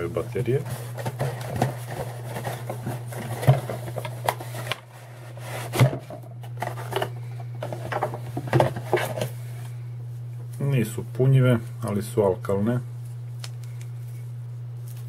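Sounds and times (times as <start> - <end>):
steady low hum: 0.0 - 15.0
cardboard box scraping and rustling: 0.5 - 7.1.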